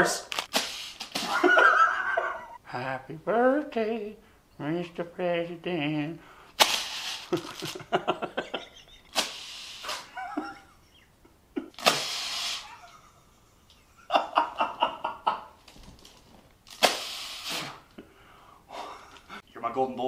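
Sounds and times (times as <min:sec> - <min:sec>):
party blower blows: 0:00.5 - 0:01.3, 0:06.6 - 0:07.3, 0:09.1 - 0:10.1, 0:11.8 - 0:12.8, 0:16.8 - 0:17.9
man laughing: 0:01.2 - 0:02.6, 0:07.2 - 0:09.2, 0:10.0 - 0:15.6, 0:18.7 - 0:19.4.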